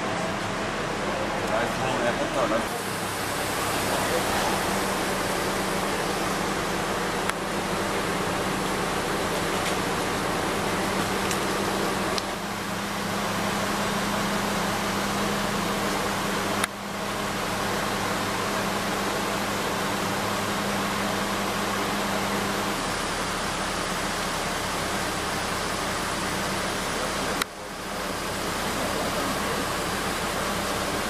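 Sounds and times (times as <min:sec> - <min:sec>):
steady loud hiss: 0:00.5 - 0:16.7.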